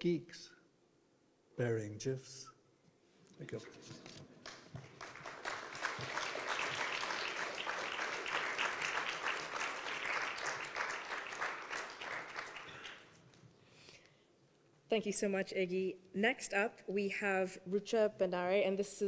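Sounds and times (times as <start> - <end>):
audience applauding: 4.3 - 13.4.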